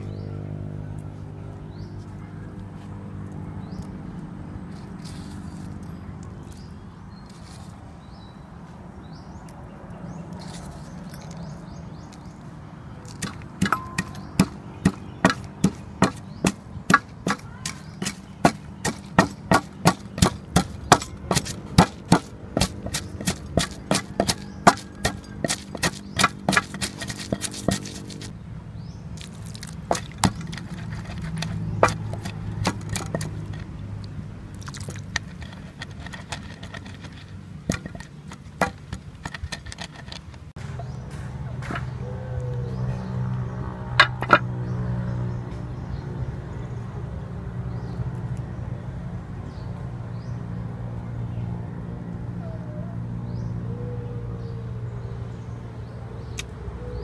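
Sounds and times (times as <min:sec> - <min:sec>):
wooden pestle pounding in mortar: 0:13.1 - 0:28.3, 0:29.2 - 0:33.7, 0:34.6 - 0:40.9, 0:44.0 - 0:44.4.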